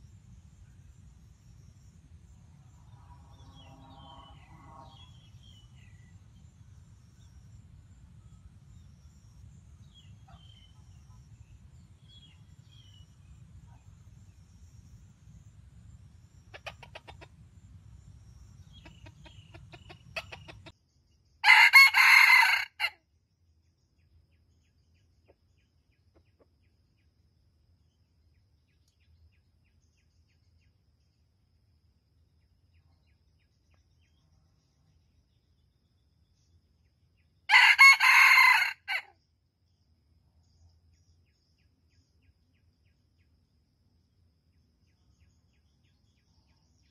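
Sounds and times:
low steady rumble: 0.0 - 20.8
soft clucks: 16.5 - 17.4, 18.7 - 20.7, 26.1 - 26.6
rooster crowing: 21.4 - 23.0, 37.5 - 39.1.

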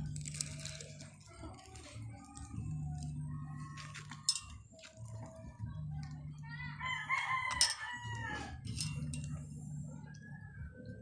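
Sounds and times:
rooster crowing: 6.8 - 8.6.

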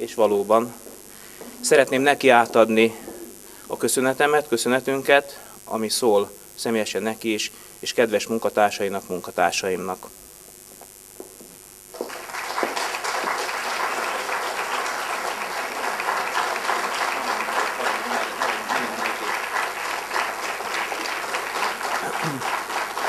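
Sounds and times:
audience applauding: 11.9 - 23.0.

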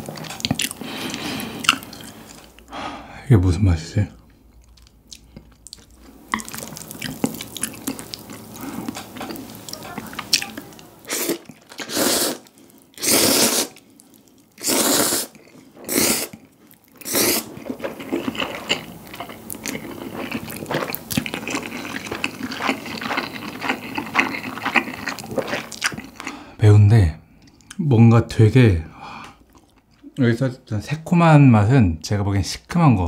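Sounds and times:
wet chewing: 0.0 - 2.7, 4.3 - 26.4
person slurping noodles: 11.0 - 13.8, 14.6 - 16.4, 17.0 - 18.9.

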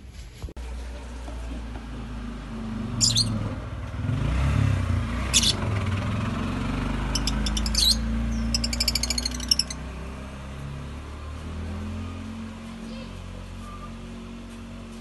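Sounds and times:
lovebirds chirping: 3.0 - 3.4, 5.3 - 5.6, 7.0 - 9.8.

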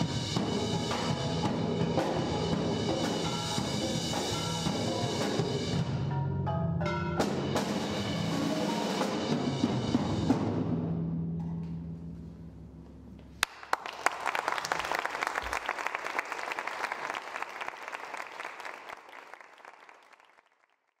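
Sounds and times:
audience applause: 13.4 - 21.0.

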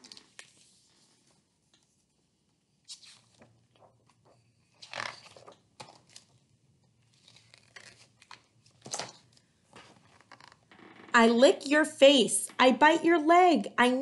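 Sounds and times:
book pages rustling: 0.0 - 2.0, 2.8 - 6.4, 7.0 - 10.6.

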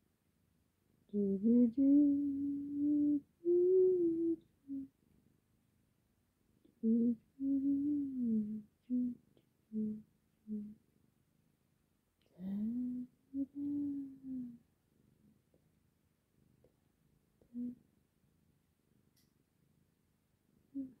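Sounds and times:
person humming: 1.1 - 4.9, 6.7 - 10.8, 12.3 - 14.6, 17.5 - 17.8, 20.8 - 21.0.

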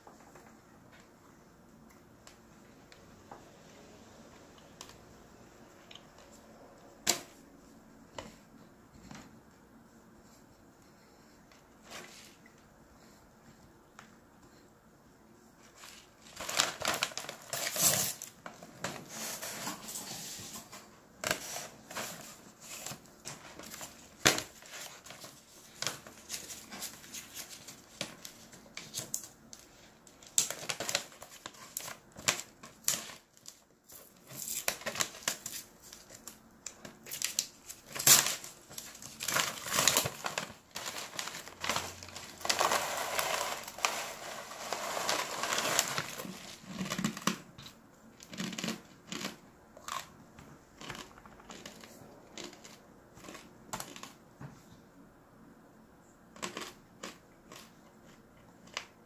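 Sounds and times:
paper packaging rustling: 15.6 - 47.4
crunching and chewing: 23.3 - 54.2, 56.3 - 59.0.

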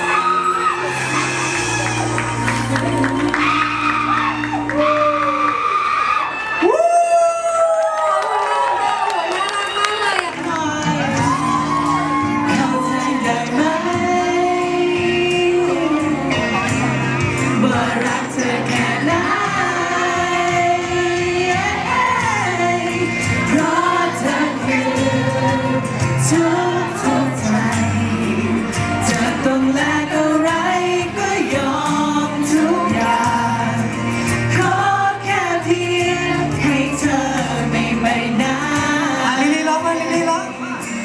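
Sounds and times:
person singing into microphone: 0.0 - 5.9, 9.9 - 41.0
pop backing track: 10.1 - 41.0.

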